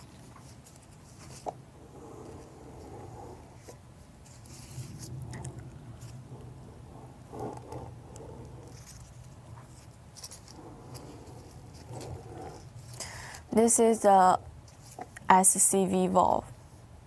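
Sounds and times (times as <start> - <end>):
plastic gloves rustling: 0.0 - 15.2
steady low hum: 0.0 - 17.0.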